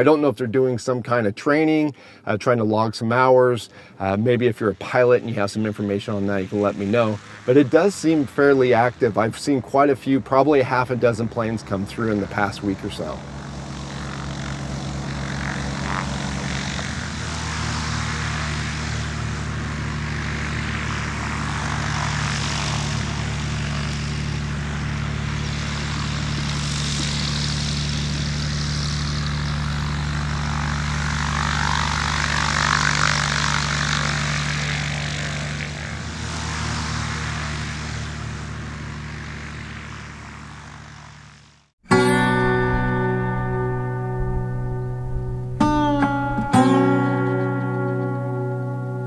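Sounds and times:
light airplane engine droning: 0.0 - 49.0.

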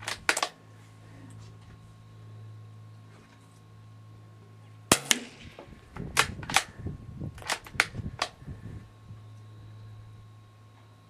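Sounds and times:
quiet rifle shot crack: 4.9 - 6.7
rifle bolt clicks and clacks: 7.4 - 8.3.

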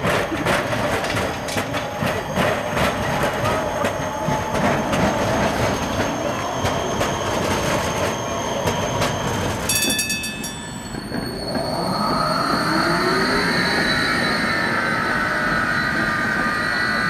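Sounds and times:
tram traction drive whining: 0.0 - 17.0
wheels rumbling on rails: 0.0 - 17.0
metallic clatter with ringing: 9.7 - 11.6.

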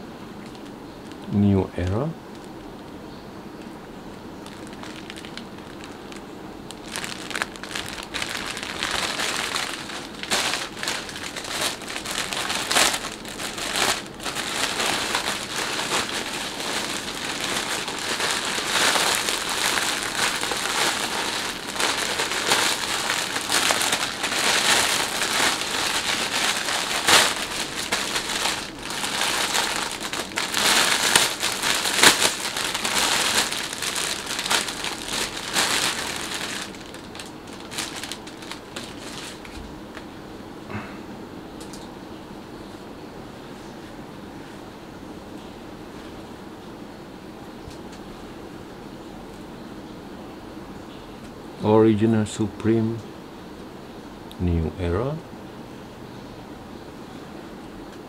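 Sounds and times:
plastic bag crinkling: 0.4 - 1.3, 4.4 - 39.7.

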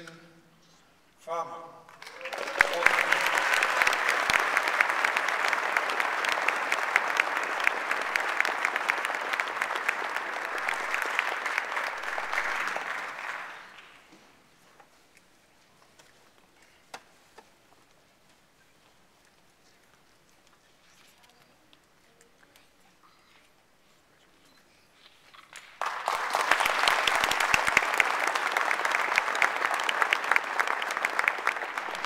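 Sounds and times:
audience applauding: 2.0 - 14.1, 25.5 - 32.0.

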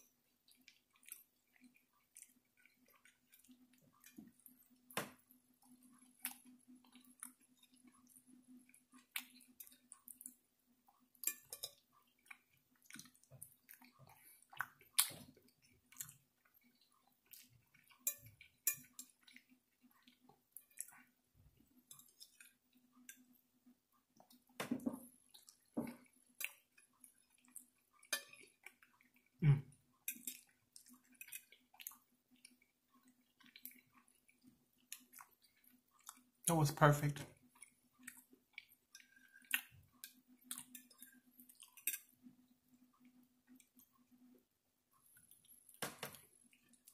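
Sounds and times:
chewing and mouth noises: 0.0 - 36.5, 37.4 - 46.9.

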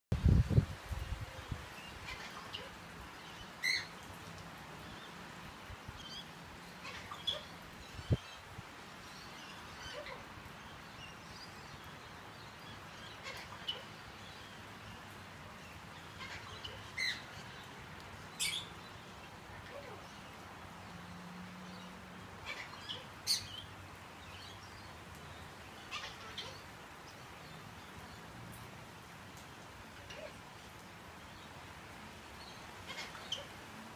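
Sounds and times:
steady background hiss: 0.2 - 33.9
parrot calls and chirps: 1.8 - 4.1, 6.0 - 8.4, 9.4 - 10.3, 12.9 - 14.4, 15.6 - 17.7, 18.3 - 18.8, 22.4 - 24.6, 25.8 - 26.6, 32.8 - 33.5.

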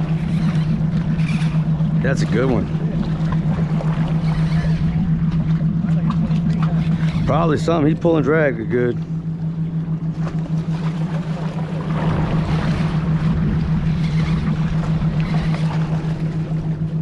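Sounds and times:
boat engine humming: 0.0 - 17.0
water wash: 0.0 - 17.0
wind: 0.0 - 17.0.

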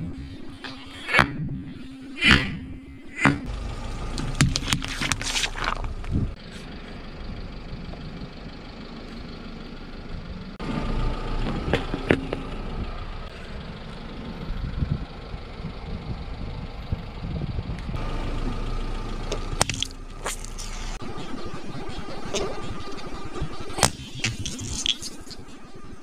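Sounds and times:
car engine idling: 3.4 - 26.0
tyre rolling on asphalt: 3.9 - 6.3.

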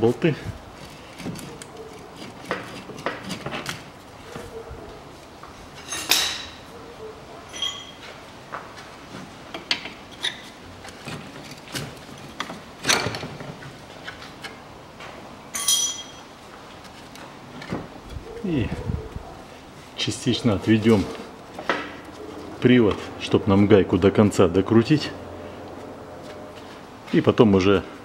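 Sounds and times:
metallic tool clinks: 7.5 - 8.0, 15.5 - 16.3
ringing metal clanks: 7.5 - 8.0, 15.5 - 16.3.

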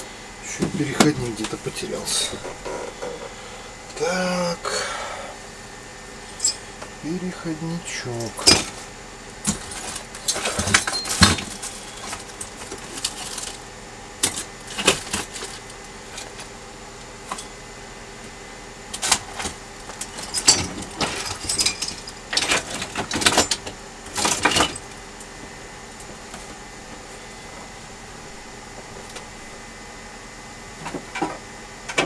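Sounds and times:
small hard objects clattering: 9.5 - 13.6.

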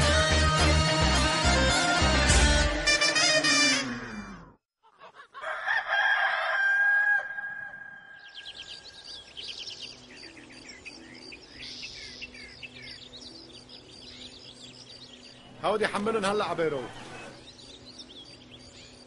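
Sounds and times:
rooster crowing: 5.4 - 8.4
small birds chirping: 8.0 - 19.0.

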